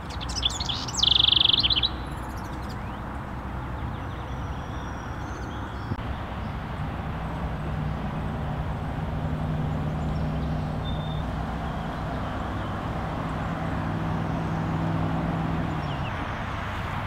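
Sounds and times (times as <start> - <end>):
outdoor background noise: 0.0 - 17.0
vehicle engine hum: 0.0 - 17.0.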